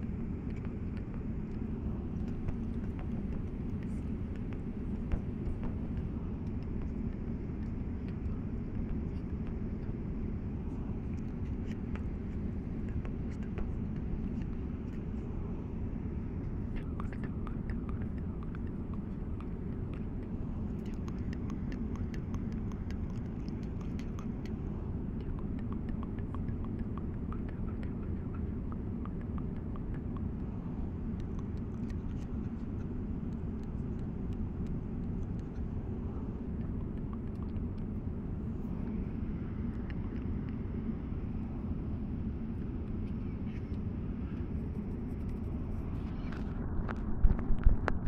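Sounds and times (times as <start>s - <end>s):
airliner cabin drone: 0.0s - 48.0s
soft rapid clicks: 16.8s - 24.6s.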